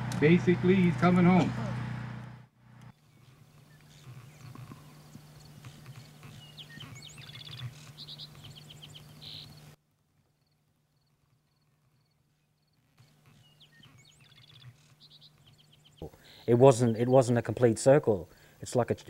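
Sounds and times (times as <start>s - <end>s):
steady low hum: 0.0s - 9.8s
birds chirping: 2.8s - 9.8s, 10.4s - 18.6s.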